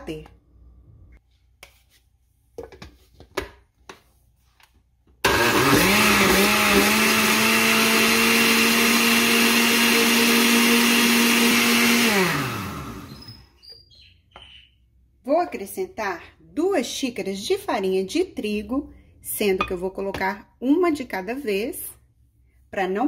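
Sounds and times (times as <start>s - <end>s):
blender motor spinning down: 5.2s - 13.4s
blender running: 5.2s - 13.4s.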